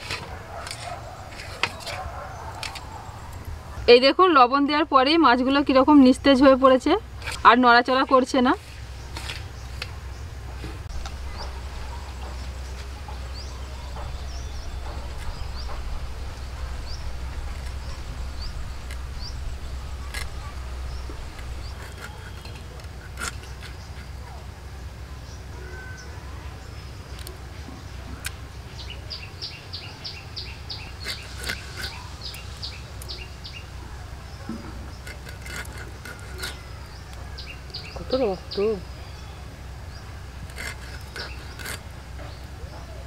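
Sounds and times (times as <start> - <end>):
birds chirping: 0.0 - 43.0
steady low rumble: 8.6 - 25.5.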